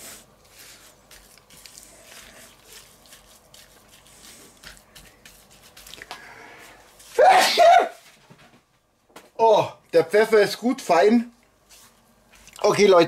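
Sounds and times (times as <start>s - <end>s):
wet squelches of raw chicken: 0.5s - 6.3s, 12.2s - 12.7s.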